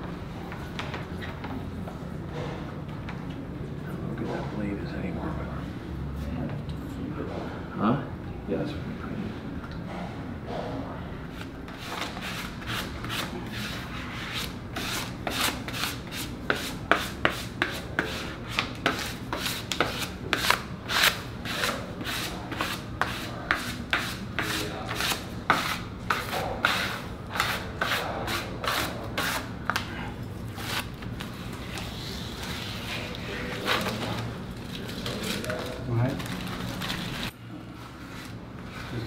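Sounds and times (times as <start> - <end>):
hand rubbing vinyl on concrete: 11.4 - 29.9, 37.8 - 39.0.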